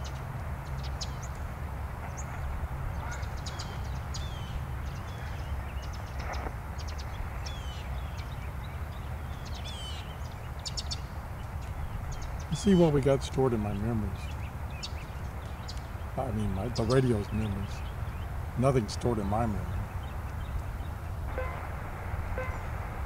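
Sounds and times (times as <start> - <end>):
birds chirping: 0.0 - 23.0
radio static while tuning: 2.0 - 3.9, 5.1 - 7.6, 21.2 - 23.0
low rumble: 19.7 - 23.0.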